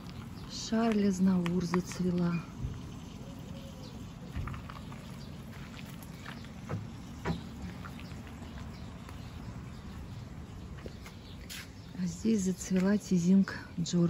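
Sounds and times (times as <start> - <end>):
soft knocks: 6.6 - 7.7.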